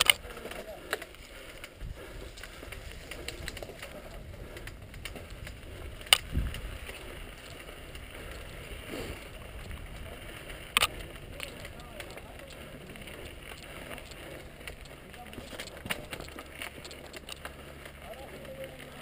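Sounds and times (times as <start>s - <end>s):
bike tyres rolling on dirt: 0.0s - 19.0s
wind on camera: 1.6s - 15.0s.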